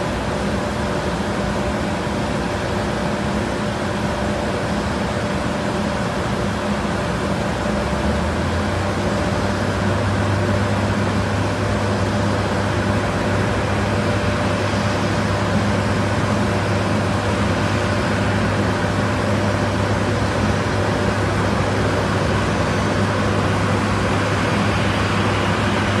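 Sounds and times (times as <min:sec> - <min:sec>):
fire truck water pumps: 0:00.0 - 0:26.0
jet engines idling: 0:00.0 - 0:26.0.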